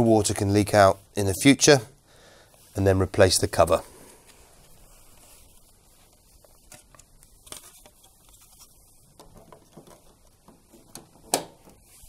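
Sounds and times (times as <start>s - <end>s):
plastic rustling and taps: 9.1s - 11.9s.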